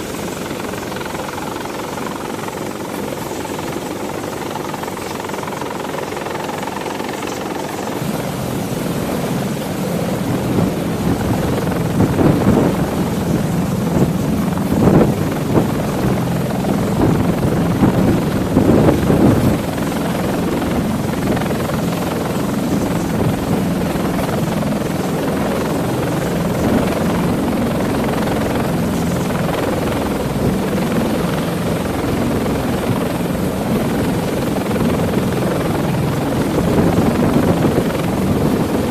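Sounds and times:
helicopter engines and rotors: 0:00.0 - 0:38.9.

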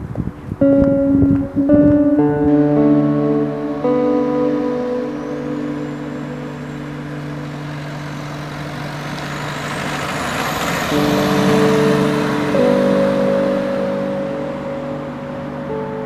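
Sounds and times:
background music with held notes: 0:00.1 - 0:16.0
car driving past: 0:04.2 - 0:15.7.

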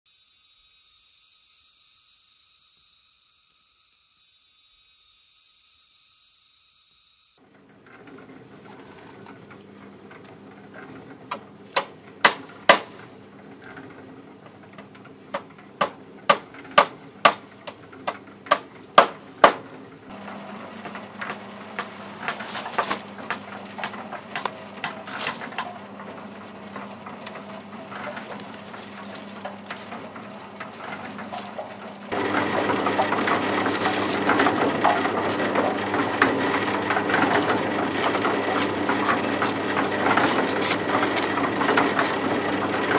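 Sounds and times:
rough rattling noise: 0:07.4 - 0:42.9
hammer blows: 0:11.3 - 0:13.0, 0:14.8 - 0:42.7.

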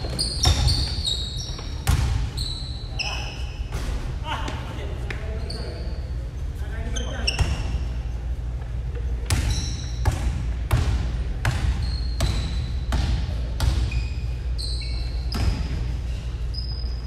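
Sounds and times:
basketball bouncing on wooden floor: 0:00.0 - 0:02.3
sneaker squeaks: 0:00.0 - 0:04.1, 0:05.1 - 0:10.6, 0:11.4 - 0:17.0.

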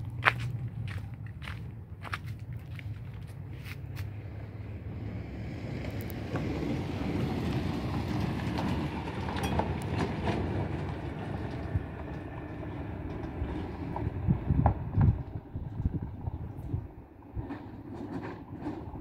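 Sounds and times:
pickup truck driving past on dirt: 0:00.0 - 0:19.0.

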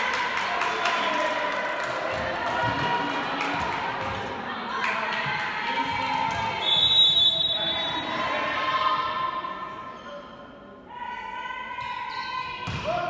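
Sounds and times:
shrill whistle blast: 0:06.6 - 0:08.0
girls shouting in echoing hall: 0:07.9 - 0:09.9, 0:10.8 - 0:13.0.

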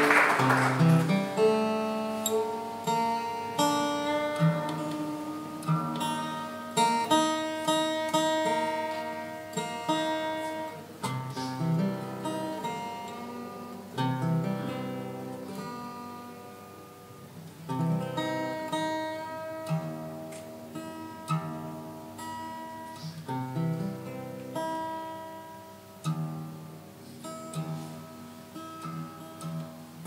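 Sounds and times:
applause: 0:00.0 - 0:01.5
acoustic guitar: 0:00.0 - 0:30.0.

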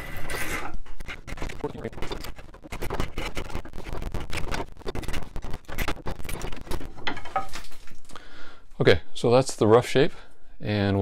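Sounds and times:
draw knife scraping wood: 0:00.0 - 0:07.6.

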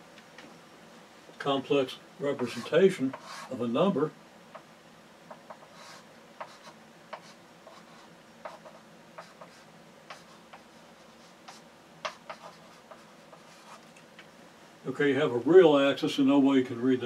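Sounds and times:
chalk tapping and scratching: 0:02.3 - 0:03.6, 0:05.3 - 0:14.0.

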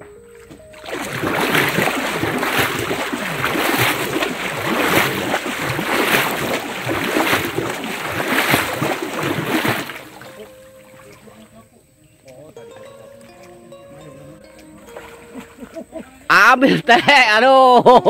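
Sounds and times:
river water sloshing from wading: 0:00.0 - 0:17.0.

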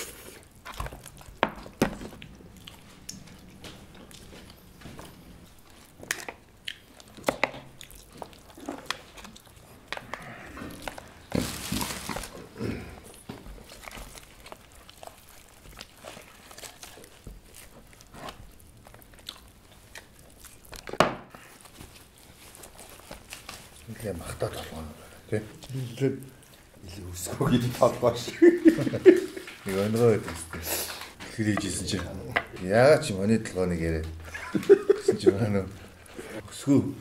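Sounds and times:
person chewing and biting: 0:00.0 - 0:23.9.

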